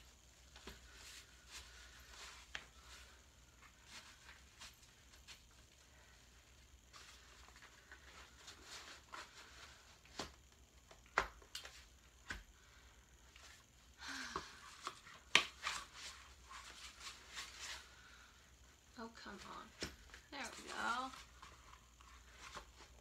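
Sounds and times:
mesh and fabric rustling: 18.9 - 23.0.

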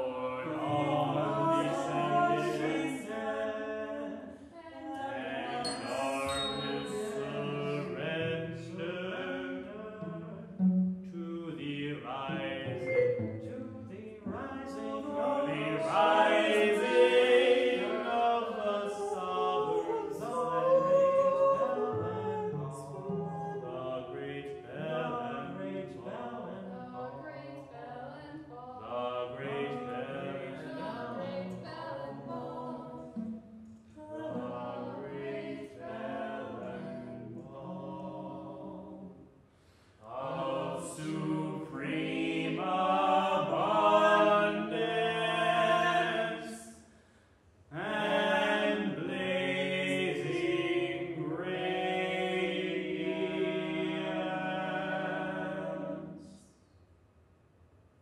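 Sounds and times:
a cappella choir singing: 0.0 - 47.0, 47.7 - 56.6.

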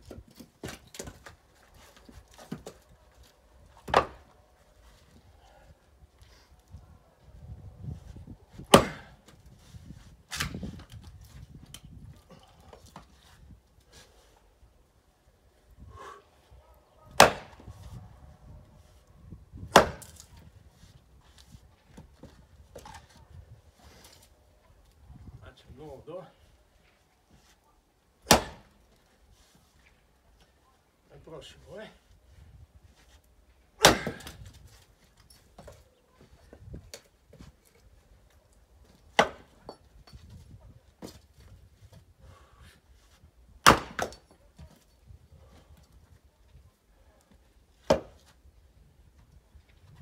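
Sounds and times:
axe chopping firewood: 0.1 - 2.8, 3.7 - 4.3, 8.5 - 9.4, 17.1 - 17.7, 19.6 - 20.4, 28.2 - 29.0, 33.8 - 34.6, 38.9 - 40.3, 43.6 - 44.8, 47.8 - 48.4.

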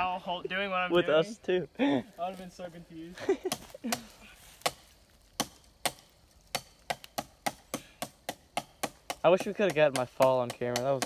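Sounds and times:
twigs cracking and snapping: 3.5 - 11.0.

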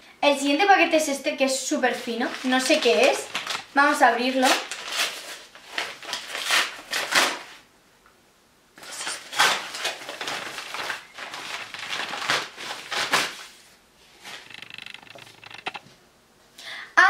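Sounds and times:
paper envelope crinkling and tearing: 2.1 - 7.6, 8.8 - 15.7.

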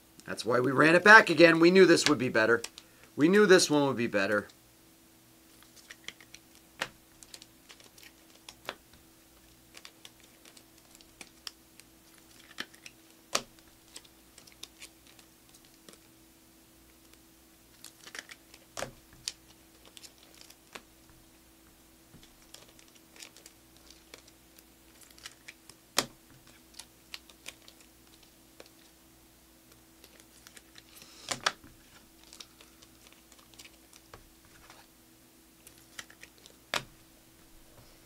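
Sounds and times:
trading cards being flipped: 5.5 - 16.1, 16.9 - 21.2, 22.1 - 28.9, 29.7 - 34.9, 35.6 - 37.0.

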